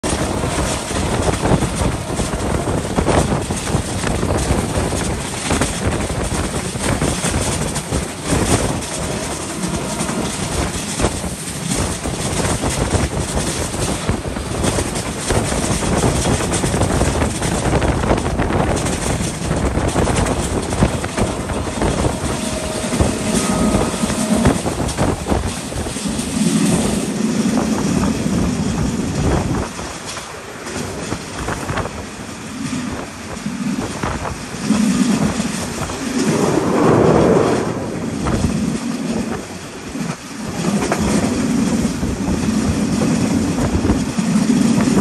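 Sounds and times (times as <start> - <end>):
train wheels rushing on rails: 0.0 - 45.0
air streaming past: 35.5 - 39.5.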